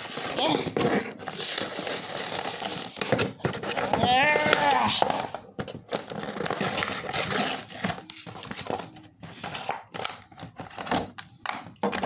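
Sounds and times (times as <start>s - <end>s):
plastic packaging crinkling: 0.0s - 11.2s.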